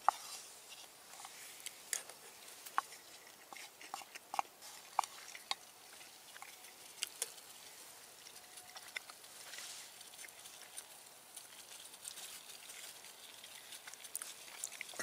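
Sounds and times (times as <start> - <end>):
wooden spoon scraping frying pan: 0.0 - 1.6
chewing: 0.0 - 15.0.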